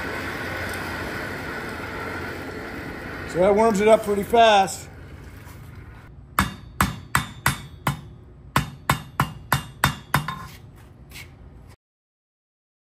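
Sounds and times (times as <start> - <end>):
hammer striking steel on anvil: 6.3 - 10.6.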